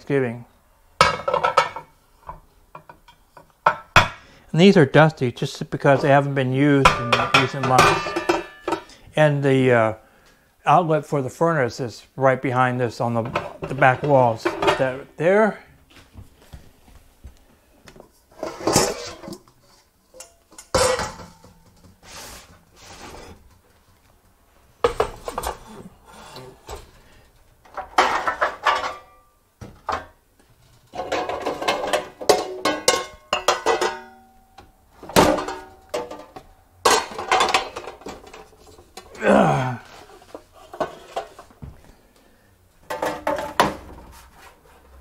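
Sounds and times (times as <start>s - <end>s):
metal pans clanking and scraping: 1.0s - 4.3s, 6.8s - 9.0s, 13.2s - 15.1s, 18.3s - 23.6s, 24.8s - 39.2s, 39.9s - 41.6s, 42.8s - 44.9s.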